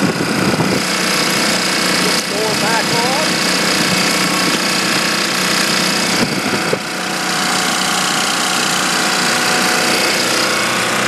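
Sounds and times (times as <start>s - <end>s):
diesel generator running: 0.0s - 11.0s.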